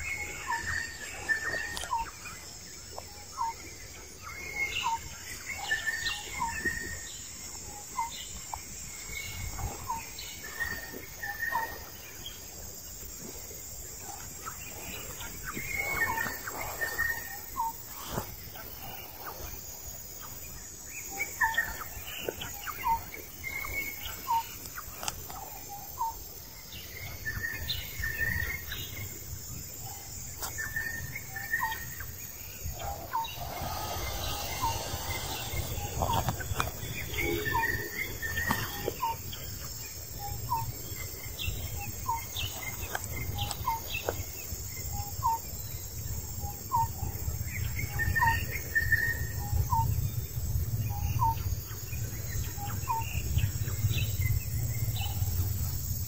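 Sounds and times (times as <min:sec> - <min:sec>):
insect hiss: 0:00.0 - 0:56.0
birds chirping: 0:30.6 - 0:40.8
low rumble: 0:32.0 - 0:38.4
bird repeating rising call: 0:32.7 - 0:38.6.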